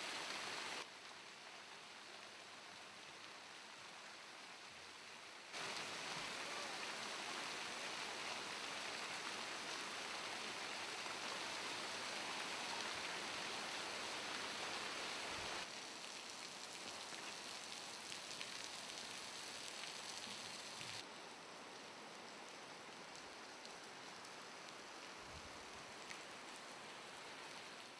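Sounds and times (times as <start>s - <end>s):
waterfall splashing down rock: 5.6s - 15.7s.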